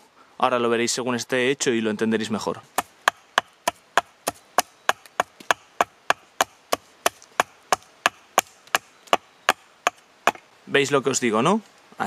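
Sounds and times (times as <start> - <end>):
hatchet chopping wood: 2.8 - 10.4.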